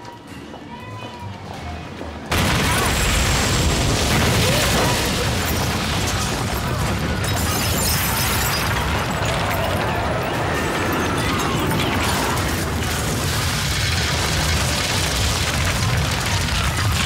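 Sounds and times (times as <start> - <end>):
loud explosion: 2.3 - 9.5, 11.7 - 17.0
fire roaring: 2.3 - 17.0.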